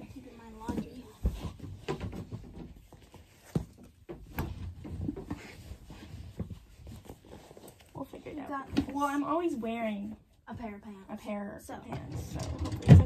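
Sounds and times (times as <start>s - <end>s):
clothes rustling: 0.0s - 10.4s.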